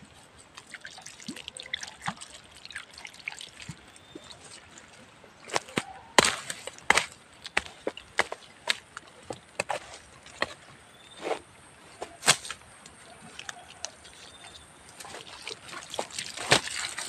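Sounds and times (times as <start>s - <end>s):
hose water splashing on ground: 0.1s - 10.4s, 12.2s - 17.0s
hand hoe chopping soil: 5.5s - 11.4s, 12.0s - 12.6s, 14.9s - 17.0s.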